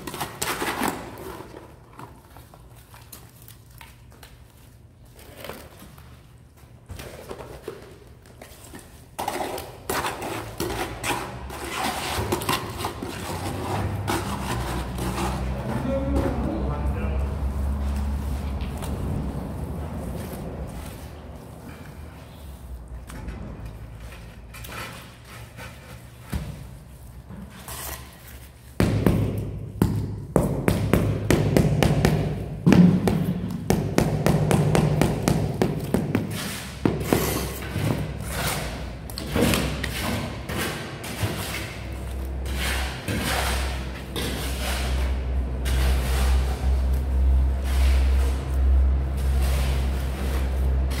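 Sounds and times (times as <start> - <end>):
trowel scraping wet mortar: 9.2 - 15.8, 35.8 - 51.0.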